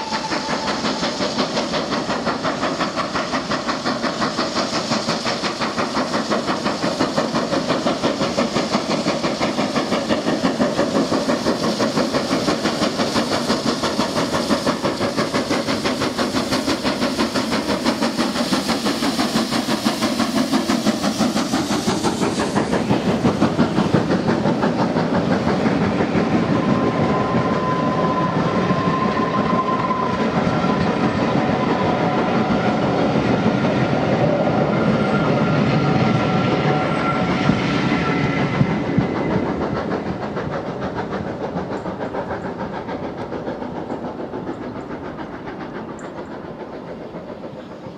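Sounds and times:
hissing steam: 0.0s - 47.9s
steam locomotive exhaust beats: 0.0s - 47.9s
train wheels clattering over rail joints: 0.0s - 47.9s
thin squeal: 34.8s - 38.6s.

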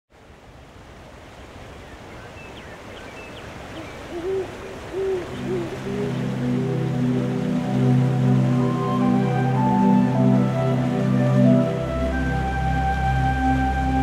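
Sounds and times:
soft rushing ambience: 0.2s - 11.2s
owl hooting: 3.8s - 6.6s
soft sustained music: 4.3s - 14.0s.

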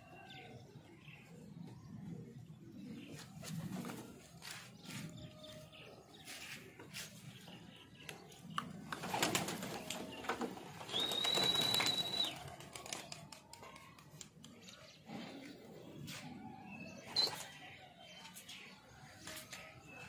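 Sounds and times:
clicks and clatter of pigeons: 8.0s - 15.0s.

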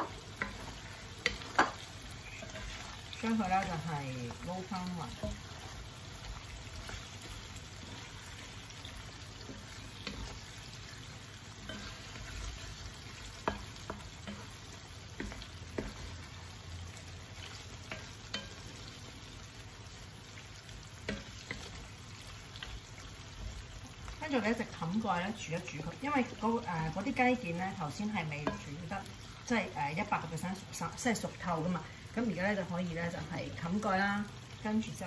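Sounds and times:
spatula knocking against pan: 0.0s - 1.8s, 13.3s - 14.5s, 15.2s - 16.2s, 28.4s - 28.7s
sauce sizzling in a wok: 0.0s - 35.0s.

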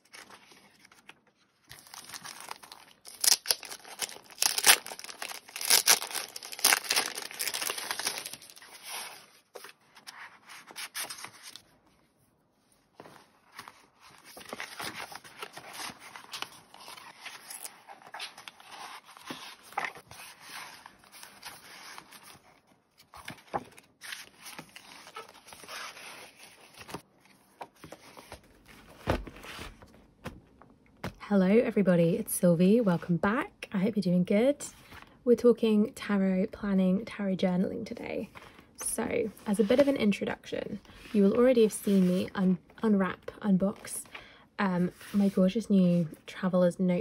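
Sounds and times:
plastic packaging crinkling: 0.0s - 9.7s.

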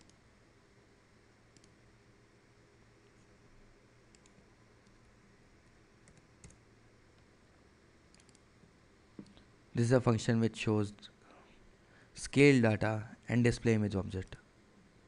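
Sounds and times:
keyboard and mouse clicks: 4.1s - 5.0s, 6.0s - 6.6s, 8.1s - 8.4s.

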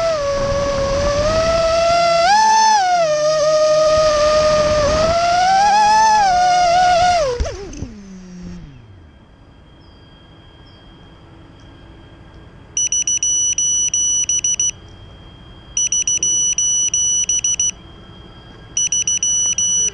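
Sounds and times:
drone motors whining: 0.0s - 19.9s
fast high-pitched buzzer beeps: 12.8s - 14.8s, 15.8s - 17.8s, 18.8s - 19.9s.

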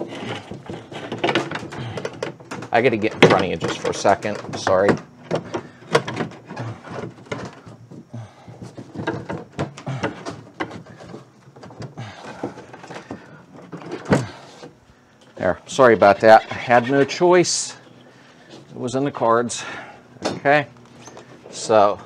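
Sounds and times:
glass and metal knocks and scrapes: 0.0s - 7.7s, 8.6s - 11.9s.

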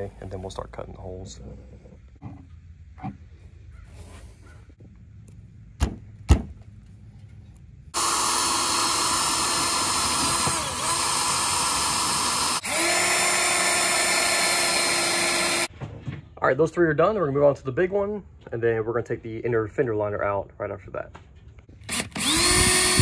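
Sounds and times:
drill boring through sheet metal: 8.0s - 15.7s, 21.9s - 23.0s.

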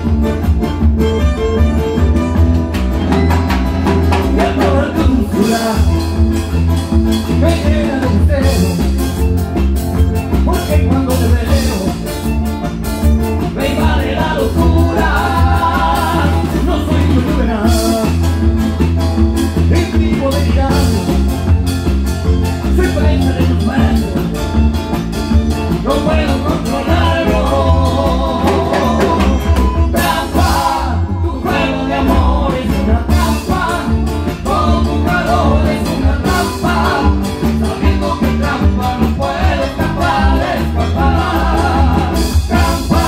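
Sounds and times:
bandoneon: 0.0s - 7.4s, 26.9s - 43.0s
acoustic guitar: 0.0s - 43.0s
drum kit beat: 0.0s - 43.0s
electric bass: 0.0s - 43.0s.

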